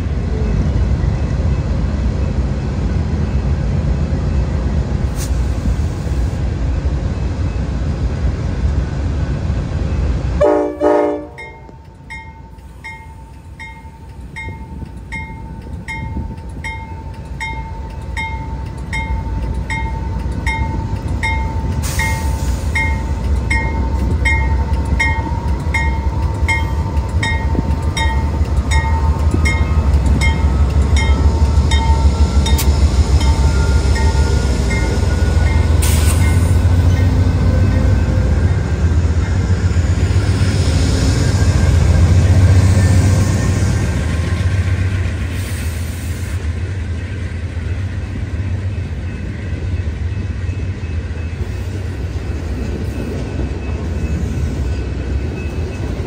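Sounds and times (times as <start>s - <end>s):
locomotive engine rumble: 0.0s - 56.0s
train horn blast: 10.4s - 11.6s
locomotive bell ringing: 11.2s - 39.6s, 48.2s - 56.0s.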